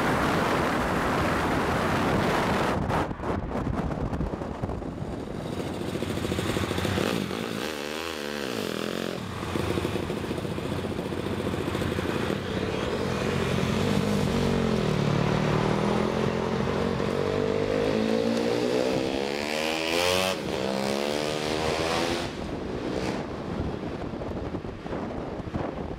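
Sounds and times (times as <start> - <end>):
road and wind noise: 0.0 - 25.9
mini bike engine revving: 5.4 - 23.2.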